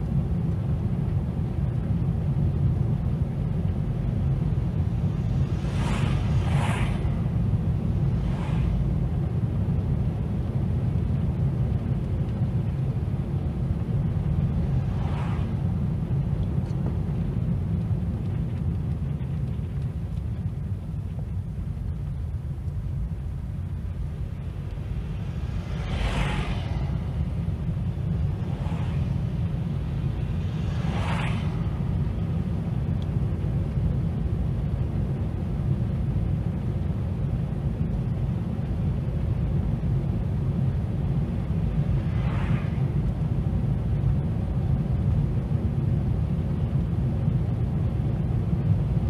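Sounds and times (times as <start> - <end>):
car engine and tyres rumbling: 0.0 - 49.0
oncoming cars whooshing past: 4.6 - 9.8, 14.2 - 16.0, 24.0 - 33.6, 41.4 - 44.0.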